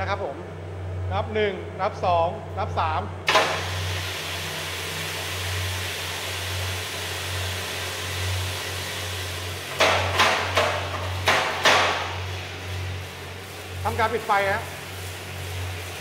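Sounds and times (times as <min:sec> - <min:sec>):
roaster machine low hum: 0:00.0 - 0:16.0
sharp knocks: 0:09.7 - 0:12.1.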